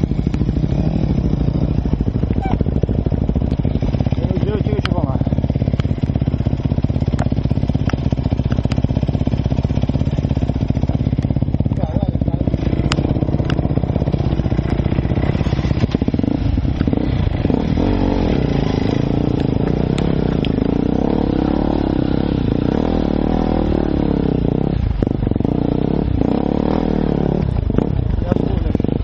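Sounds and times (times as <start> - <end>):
dirt bike engine revving: 0.0 - 29.0
sharp clicks: 5.7 - 6.2, 7.0 - 8.9, 12.8 - 13.7.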